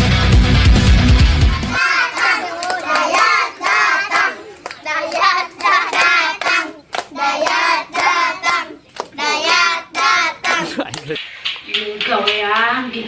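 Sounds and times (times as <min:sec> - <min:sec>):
children singing a chant: 0:01.8 - 0:10.8
hands clapping: 0:01.8 - 0:12.7.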